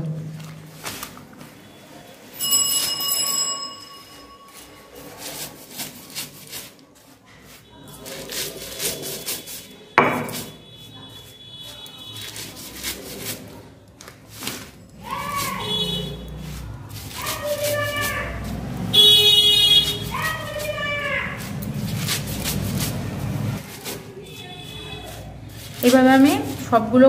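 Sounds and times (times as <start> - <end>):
brief ringing tone: 2.4 - 4.6.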